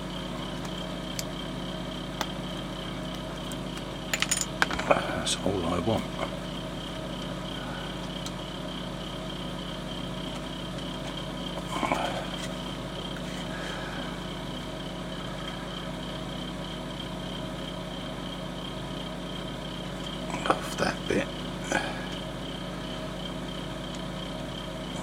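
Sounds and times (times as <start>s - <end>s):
background hum: 0.0s - 25.0s.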